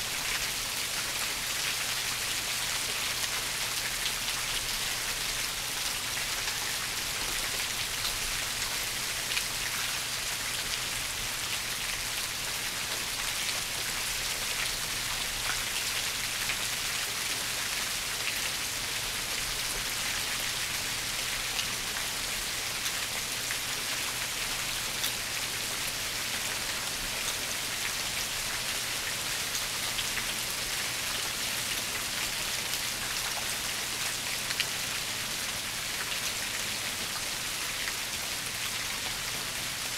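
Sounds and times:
steady rain falling: 0.0s - 39.9s.

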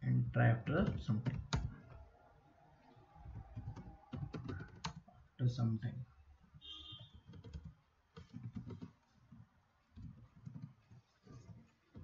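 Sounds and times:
computer keyboard typing: 3.2s - 5.1s, 7.3s - 9.0s, 9.9s - 12.0s.

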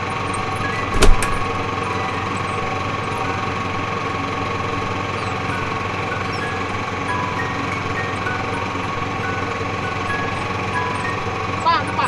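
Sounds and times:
machine drone: 0.0s - 12.0s
sharp knock: 0.9s - 1.5s.

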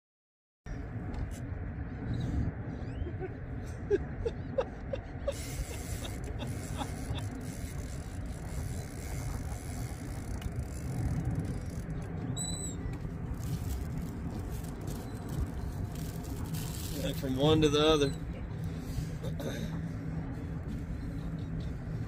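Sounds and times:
wind buffeting microphone: 5.2s - 22.0s.

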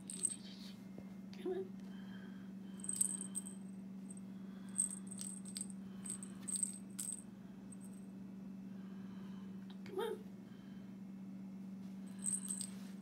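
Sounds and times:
jingle bell tinkling: 0.0s - 0.5s, 2.8s - 3.6s, 4.7s - 7.2s, 12.1s - 12.9s
steady low hum: 0.0s - 13.0s.

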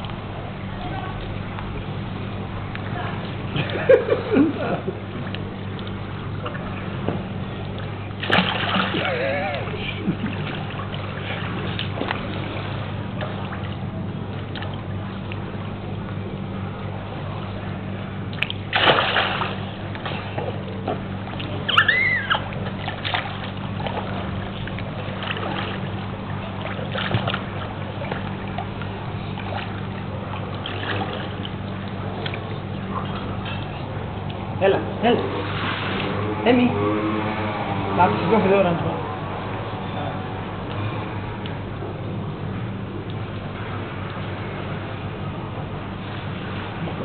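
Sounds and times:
steady low hum: 0.0s - 47.0s
water splashing in pool: 1.3s - 38.4s
child squealing: 21.7s - 22.5s.

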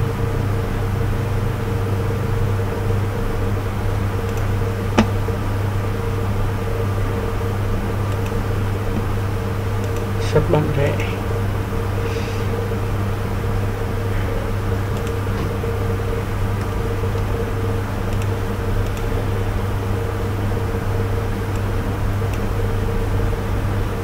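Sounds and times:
low electrical hum: 0.0s - 24.0s
faint clicks: 4.2s - 5.2s, 8.1s - 9.1s, 9.8s - 10.1s, 14.9s - 15.5s, 18.1s - 19.1s.

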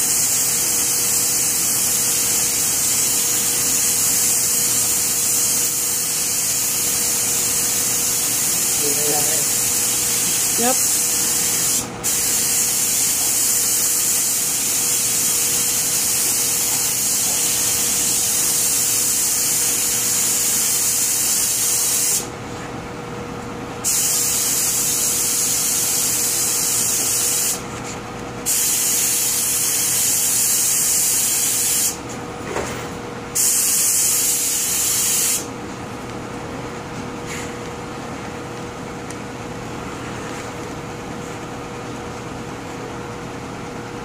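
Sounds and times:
paint spray gun hissing: 0.0s - 22.3s, 23.8s - 27.6s, 28.5s - 32.0s, 33.4s - 35.5s.

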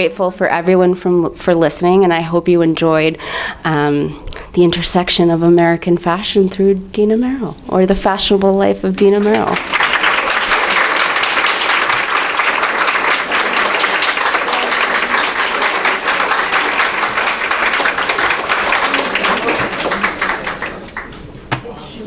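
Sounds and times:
audience applauding: 9.2s - 21.2s.

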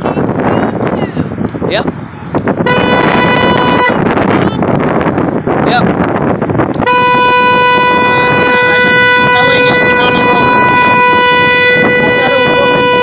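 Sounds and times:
street noise: 0.0s - 13.0s
wind noise: 0.0s - 13.0s
car horn blast: 2.6s - 4.7s, 6.8s - 13.0s.

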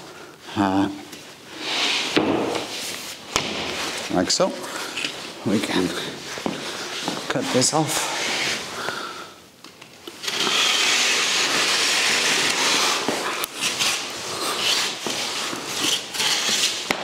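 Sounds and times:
utility knife slicing paper: 10.2s - 17.0s.

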